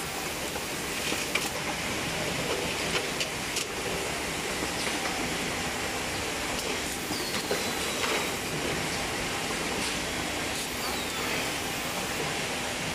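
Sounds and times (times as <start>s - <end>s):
factory machinery hiss: 5.4s - 12.9s.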